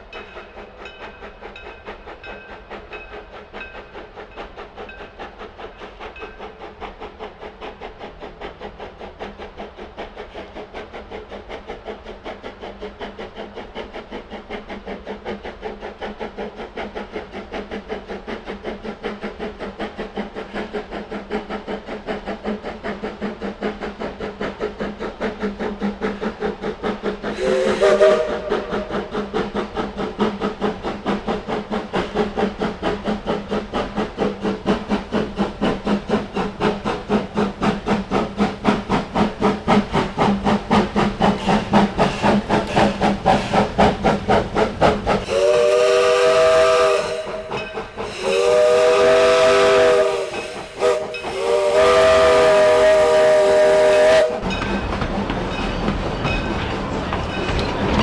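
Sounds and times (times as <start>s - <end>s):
rush of steam: 0.0s - 58.0s
steam locomotive chuffing: 0.0s - 58.0s
steam whistle blast: 27.3s - 28.9s, 45.2s - 54.4s.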